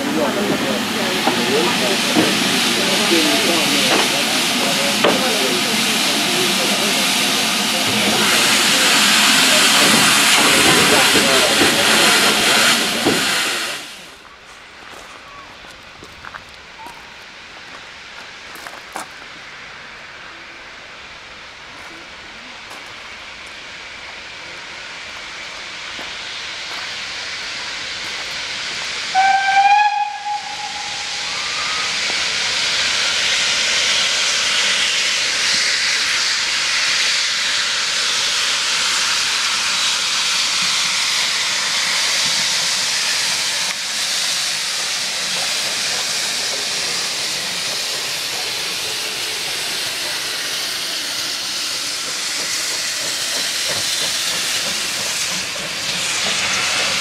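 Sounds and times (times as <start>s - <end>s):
hiss of escaping steam: 0.0s - 15.0s, 16.0s - 57.0s
steam whistle: 29.1s - 32.0s.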